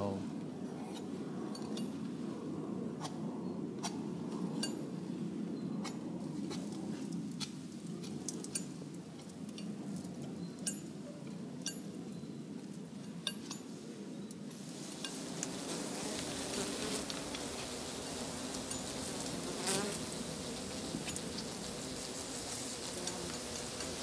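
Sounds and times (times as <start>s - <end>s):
honeybees buzzing: 14.5s - 24.0s.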